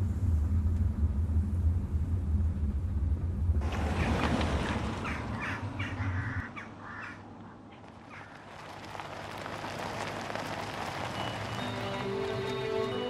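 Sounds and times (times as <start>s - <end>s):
deep bass rumble: 0.0s - 5.0s.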